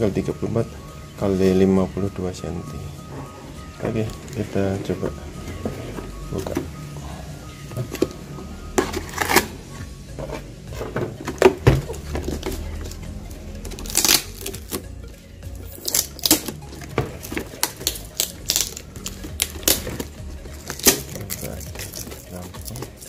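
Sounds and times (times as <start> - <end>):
background music: 0.0 - 23.0
cardboard and plastic pots knocking: 10.2 - 12.6.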